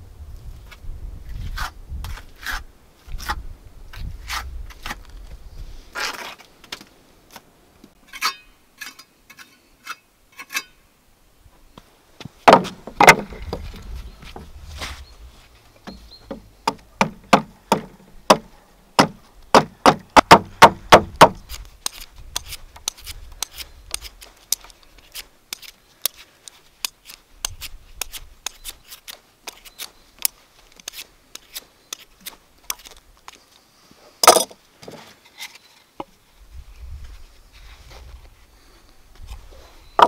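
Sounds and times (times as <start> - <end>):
hand tools knocking on wood: 12.5 - 13.7, 15.9 - 21.4
tools clattering: 34.2 - 34.6.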